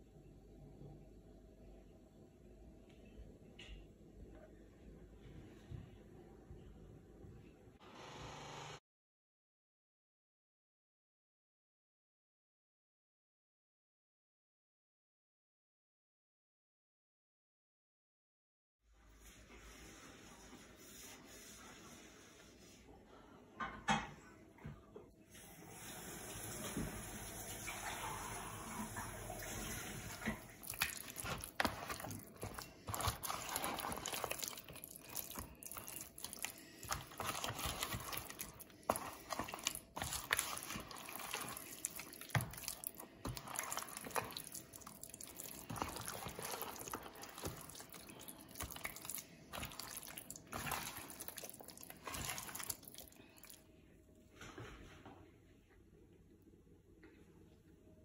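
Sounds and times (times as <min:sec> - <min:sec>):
wet squelching of chicken mixing: 0:27.8 - 0:53.7.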